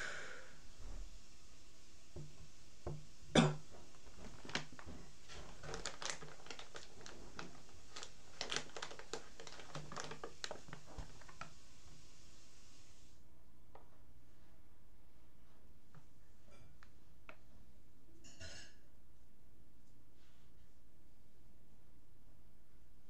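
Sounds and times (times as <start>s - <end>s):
faint clicks and taps: 16.8s - 17.5s.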